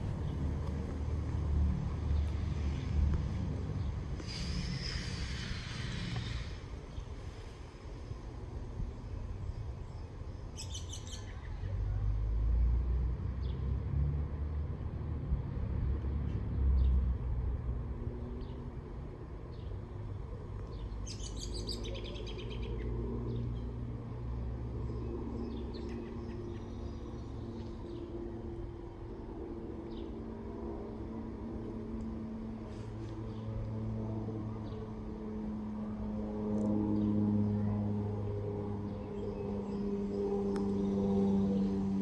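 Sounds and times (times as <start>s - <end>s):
aircraft rumbling overhead: 0.0s - 42.0s
small birds chirping: 9.5s - 11.7s, 20.6s - 23.7s.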